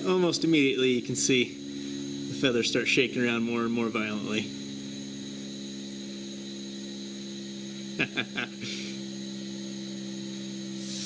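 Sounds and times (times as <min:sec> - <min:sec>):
electric fan humming: 0:00.0 - 0:11.0
faint hiss of incoming air: 0:10.8 - 0:11.0.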